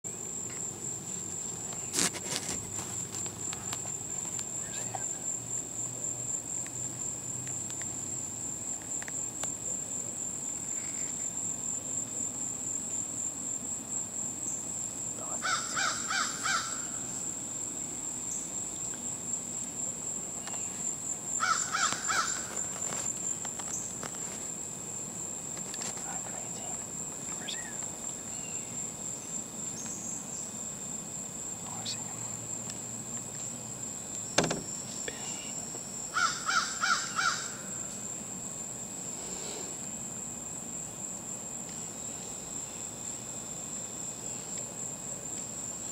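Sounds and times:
high-pitched insect drone: 0:00.1 - 0:24.4, 0:25.6 - 0:40.9
crow cawing: 0:15.4 - 0:17.0, 0:21.4 - 0:22.6, 0:36.1 - 0:37.7.

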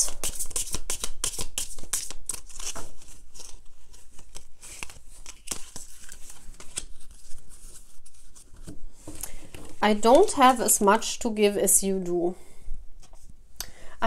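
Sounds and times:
cards being shuffled: 0:00.0 - 0:09.8.

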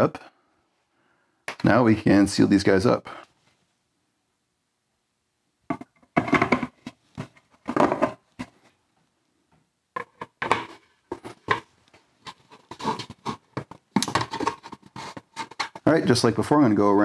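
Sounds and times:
plastic parts knocking and clattering: 0:05.7 - 0:08.7, 0:09.9 - 0:16.2.

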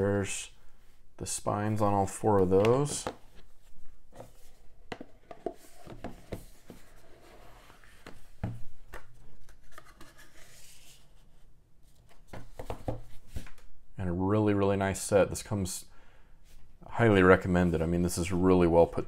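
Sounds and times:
hands rubbing and sliding cardboard: 0:02.3 - 0:11.4.

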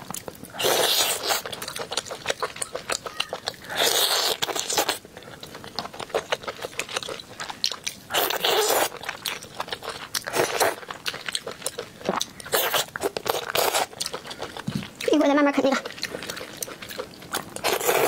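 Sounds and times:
wet chewing and lip-smacking: 0:00.0 - 0:18.0
sucking slurps: 0:00.5 - 0:05.0, 0:15.8 - 0:18.0.

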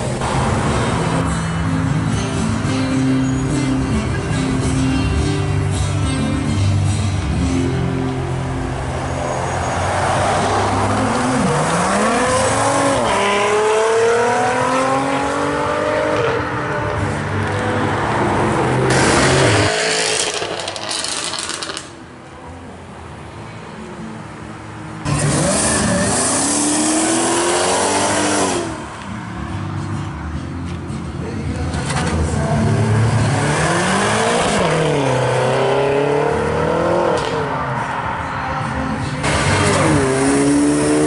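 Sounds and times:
car engines accelerating: 0:00.0 - 0:22.2, 0:23.0 - 0:41.0.

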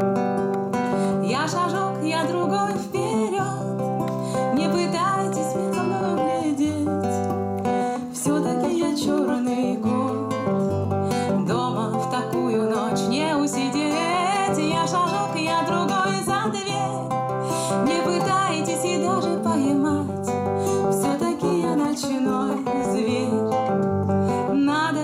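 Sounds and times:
acoustic guitar strumming: 0:00.0 - 0:25.0
woman singing: 0:00.7 - 0:25.0.

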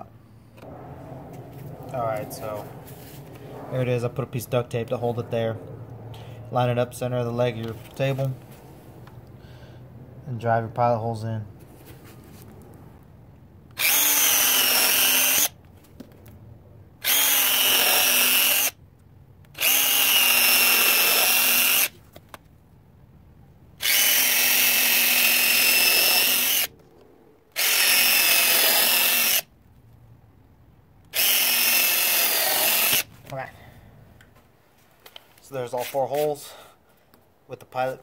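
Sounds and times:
cordless drill boring into wood: 0:13.8 - 0:15.6, 0:17.0 - 0:18.8, 0:19.6 - 0:21.9, 0:23.8 - 0:26.7, 0:27.6 - 0:29.5, 0:31.1 - 0:33.1.

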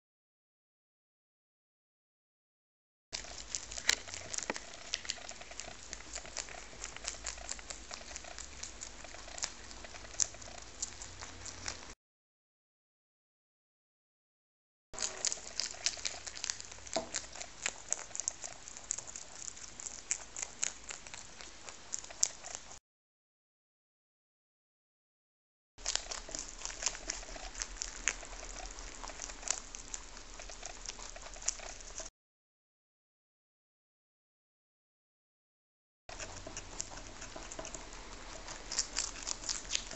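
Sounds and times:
rabbits crunching cabbage leaves: 0:03.2 - 0:12.0, 0:15.0 - 0:22.8, 0:25.8 - 0:32.1, 0:36.1 - 0:39.9.

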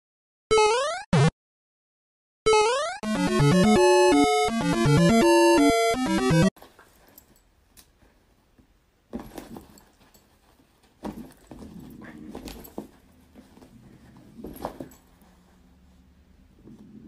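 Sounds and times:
scuffling and thumps: 0:09.1 - 0:15.6
puppy growling: 0:11.5 - 0:12.7, 0:16.5 - 0:17.0.

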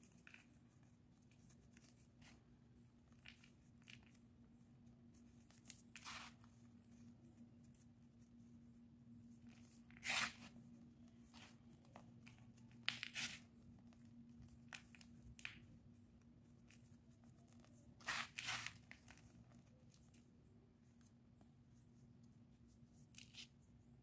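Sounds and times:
gritty crunching of crushed powder: 0:05.4 - 0:06.5, 0:09.4 - 0:10.6, 0:18.0 - 0:19.3.

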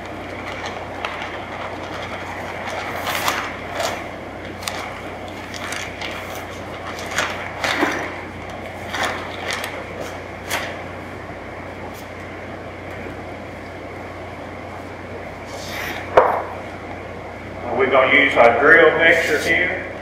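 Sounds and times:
paper bag crackling and rustling: 0:00.0 - 0:10.9.

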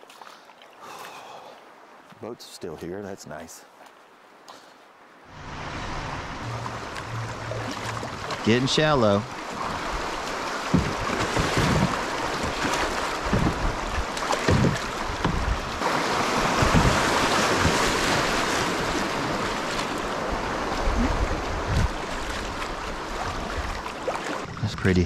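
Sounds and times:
river water rushing and splashing: 0:00.0 - 0:02.3, 0:03.7 - 0:25.0
wind buffeting microphone: 0:09.3 - 0:23.8.

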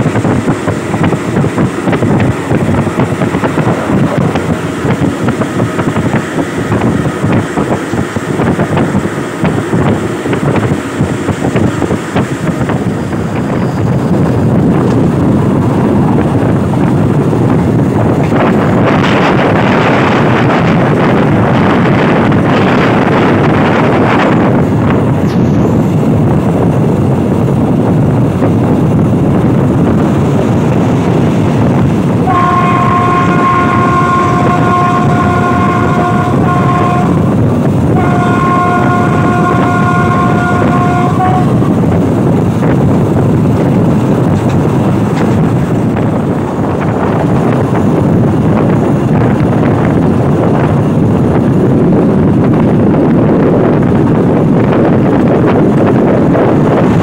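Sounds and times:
train rumbling: 0:00.0 - 0:57.0
wind rushing past window: 0:00.0 - 0:57.0
train horn blasts: 0:32.2 - 0:41.9.

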